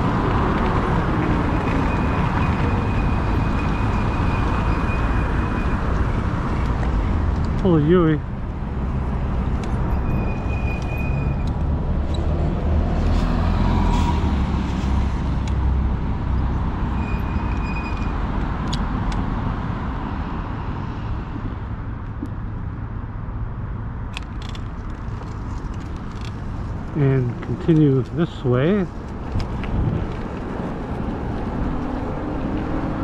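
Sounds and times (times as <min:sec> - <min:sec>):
tire road noise: 0:00.0 - 0:33.0
wind rumbling on microphone: 0:24.6 - 0:33.0.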